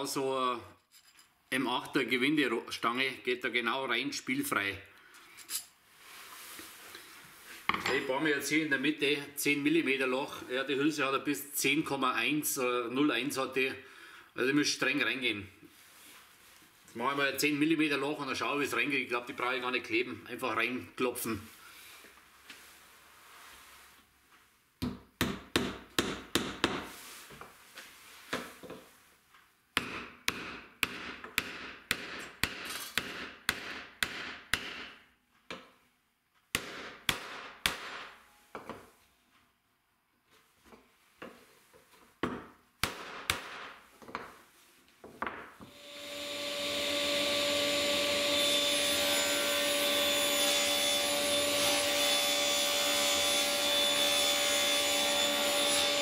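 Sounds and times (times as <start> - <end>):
table saw running: 45.7 - 56.0.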